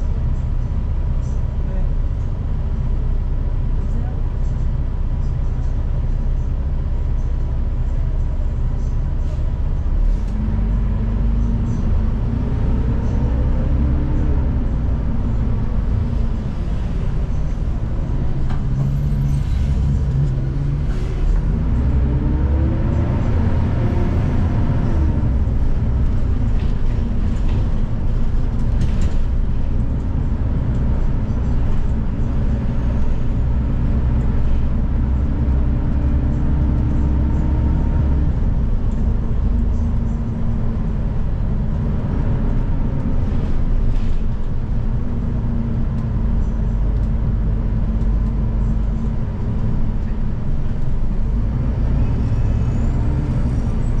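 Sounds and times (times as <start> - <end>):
bus engine drone with whine: 0.0 - 54.0.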